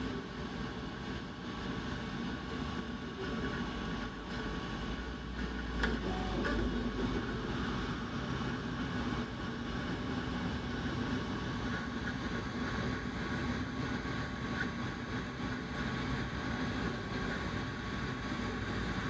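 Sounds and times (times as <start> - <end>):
printer mechanical hum and whir: 0.0 - 19.0.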